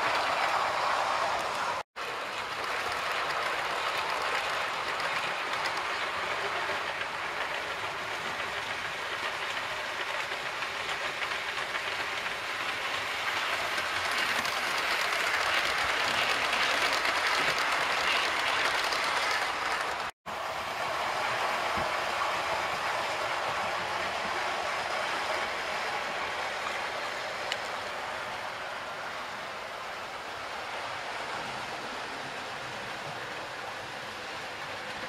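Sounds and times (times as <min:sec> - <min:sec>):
model train wheels rattling: 0:02.0 - 0:20.1.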